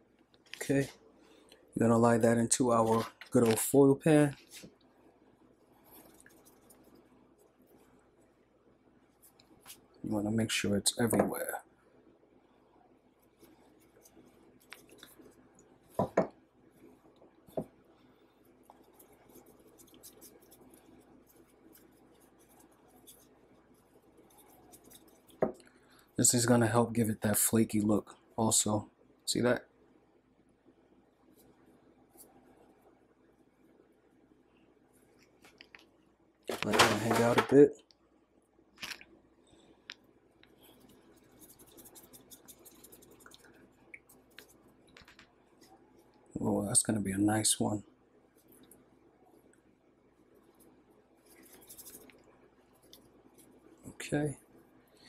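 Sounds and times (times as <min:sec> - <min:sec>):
flour rustling: 0:16.8 - 0:25.5, 0:40.6 - 0:46.1, 0:50.2 - 0:54.0.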